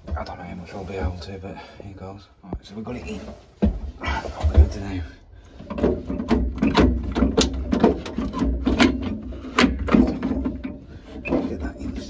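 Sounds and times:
metal fan clicking and scraping: 5.5s - 12.0s.

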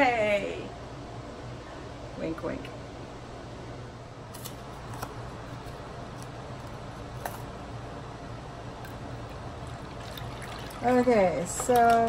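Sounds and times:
steady low hum: 0.0s - 12.0s
containers clicking and tapping: 9.9s - 12.0s.

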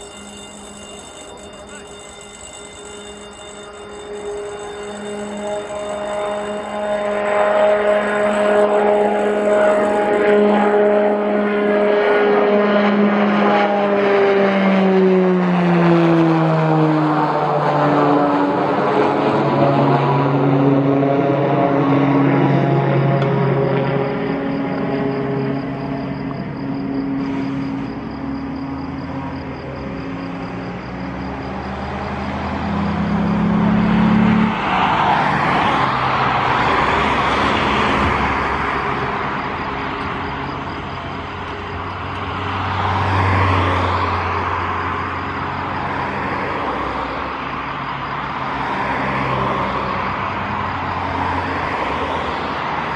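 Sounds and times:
turboprop aircraft propeller drone: 0.0s - 30.8s, 38.8s - 42.6s.

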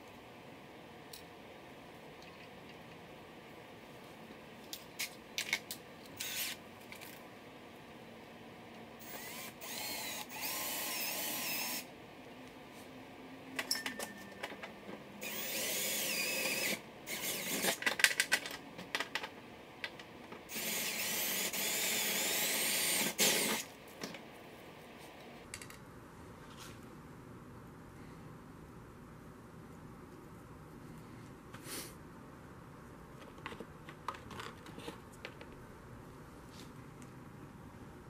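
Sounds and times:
cordless drill whining: 6.2s - 6.6s, 9.0s - 11.8s, 15.2s - 17.8s, 20.5s - 23.6s.

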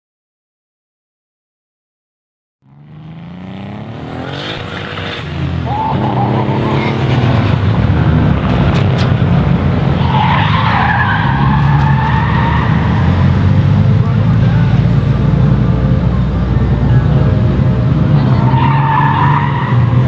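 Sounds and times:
car engine revving: 2.6s - 20.0s
tyres squealing: 4.1s - 7.6s, 8.4s - 15.1s, 17.8s - 20.0s.

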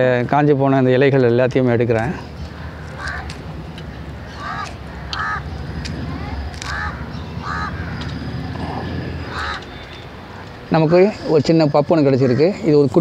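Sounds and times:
crows cawing: 2.1s - 13.0s
dry leaves crackling: 2.4s - 8.1s
low background rumble: 2.5s - 9.6s.

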